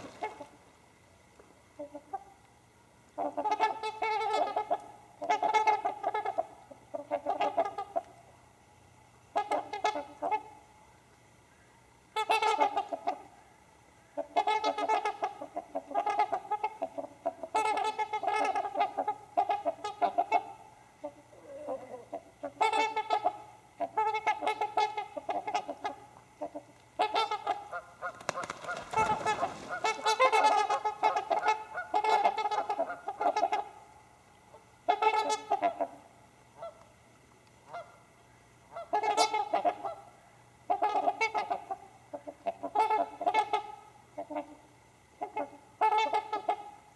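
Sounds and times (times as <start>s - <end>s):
swans honking: 0.0s - 0.7s, 1.7s - 2.5s, 3.1s - 8.3s, 9.2s - 10.7s, 12.1s - 36.9s, 37.6s - 46.9s.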